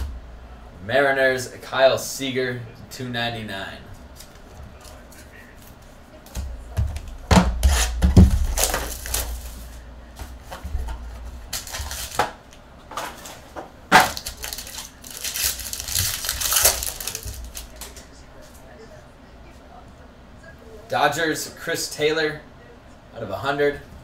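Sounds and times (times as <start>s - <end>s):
thuds: 6.3s - 8.9s
cardboard box knocked: 7.3s - 8.7s
plastic wrapper crinkling: 8.4s - 9.7s, 11.4s - 12.3s, 13.9s - 18.0s.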